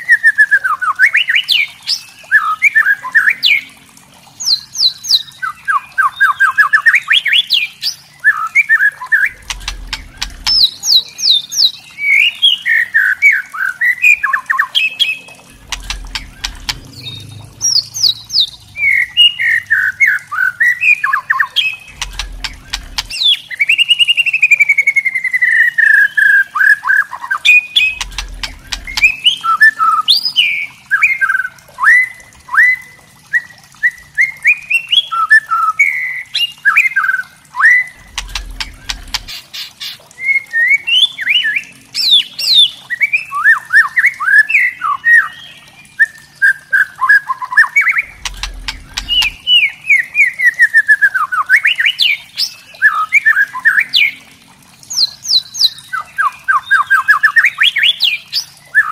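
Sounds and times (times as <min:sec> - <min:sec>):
low rumble: 0:09.3 - 0:10.9, 0:15.5 - 0:20.2, 0:21.8 - 0:23.2, 0:27.8 - 0:29.4, 0:38.0 - 0:39.4, 0:48.0 - 0:49.7
bird clicking rattles: 0:15.5 - 0:18.8, 0:21.9 - 0:23.2, 0:27.9 - 0:29.2, 0:38.0 - 0:39.4, 0:48.1 - 0:49.5.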